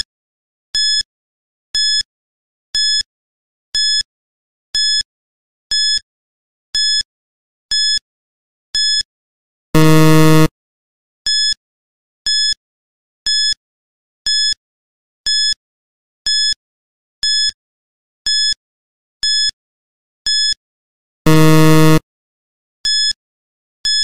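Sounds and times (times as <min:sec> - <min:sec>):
low buzzer: 0:09.8 - 0:10.5, 0:21.3 - 0:22.0
short high beeps: 0:09.8 - 0:10.5, 0:21.3 - 0:22.0.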